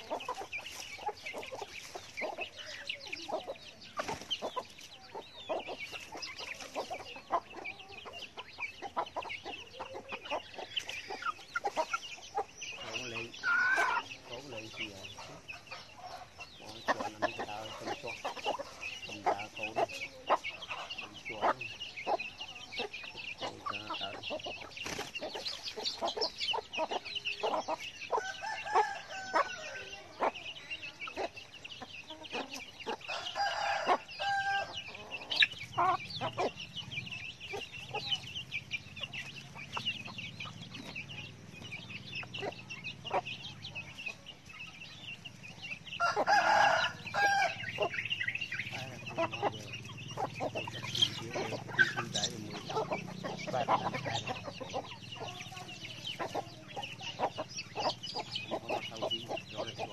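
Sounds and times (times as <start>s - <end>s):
chicks peeping: 0.0s - 59.9s
hens clucking: 0.0s - 59.9s
loud chicken calls: 0.0s - 59.9s.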